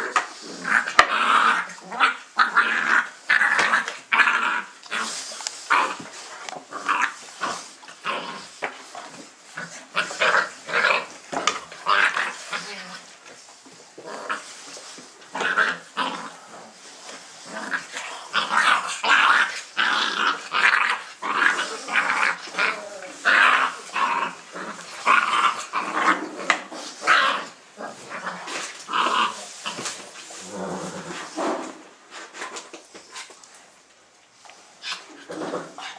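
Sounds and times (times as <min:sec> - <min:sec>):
puppies yipping and growling: 0:17.1 - 0:31.4.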